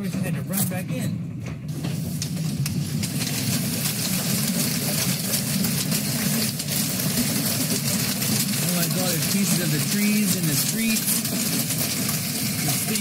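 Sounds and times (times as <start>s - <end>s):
low rumble: 0.0s - 9.9s
hailstones clattering: 1.7s - 13.0s.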